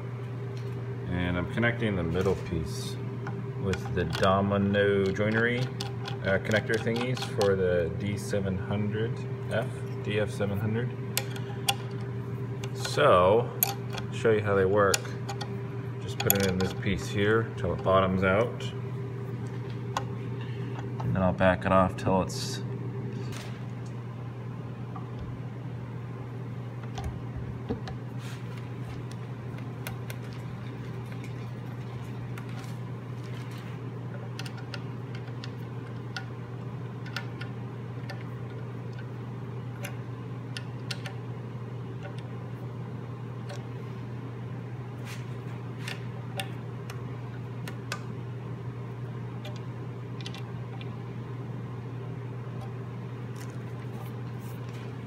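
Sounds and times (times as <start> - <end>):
low room hum: 0.0 - 55.0
hardware clicks and taps: 5.0 - 7.6, 37.0 - 39.1, 45.8 - 47.0.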